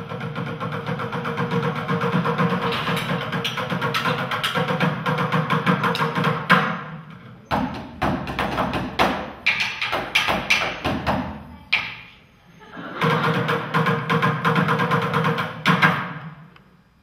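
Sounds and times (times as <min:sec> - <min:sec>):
fast drum roll: 0:00.0 - 0:06.8, 0:12.9 - 0:16.2.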